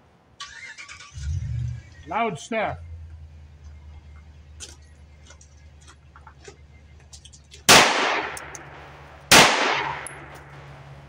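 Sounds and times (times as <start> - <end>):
pistol shots echoing: 7.7 - 10.6.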